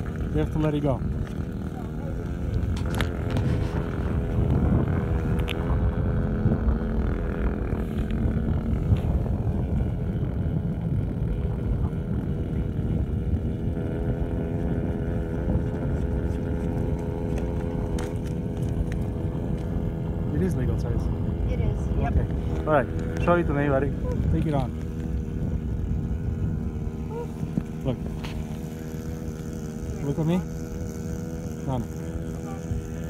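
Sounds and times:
engine running steadily: 0:00.0 - 0:33.0.

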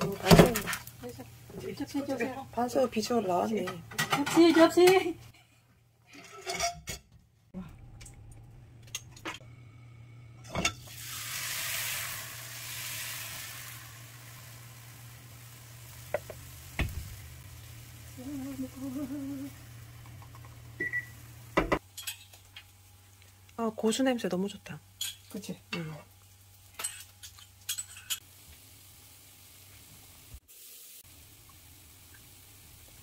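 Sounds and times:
hot oil sizzling: 0:00.0 - 0:04.1, 0:10.4 - 0:33.0
utensils and dishes clinking: 0:03.5 - 0:05.1, 0:06.1 - 0:07.2, 0:21.6 - 0:22.6, 0:26.7 - 0:28.2.

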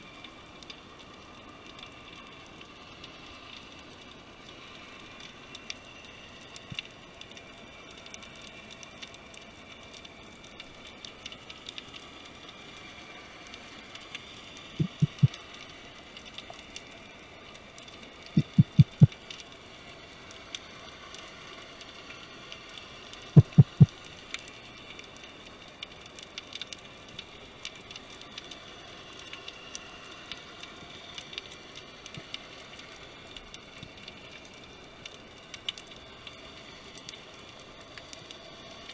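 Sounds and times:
underwater crackling and clicking: 0:00.2 - 0:38.9.

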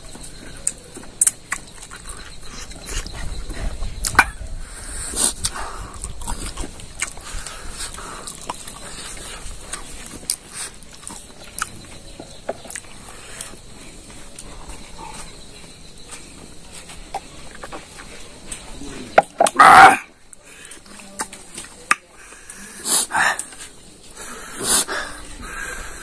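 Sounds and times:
chewing and lip smacking: 0:00.5 - 0:04.2, 0:05.3 - 0:13.6.

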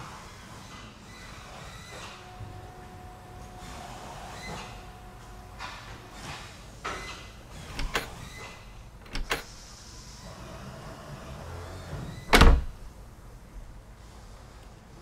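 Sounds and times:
barrel bolt sliding clicks: 0:06.9 - 0:09.5.

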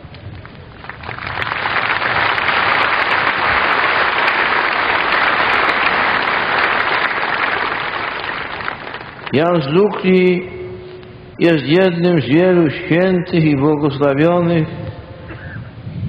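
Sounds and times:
large crowd applauding: 0:00.0 - 0:09.8.

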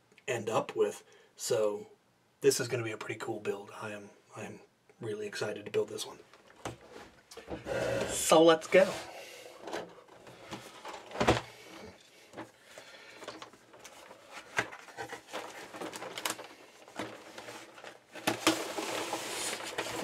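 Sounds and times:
cardboard lid sliding scrape: 0:07.6 - 0:09.2, 0:18.3 - 0:20.0.

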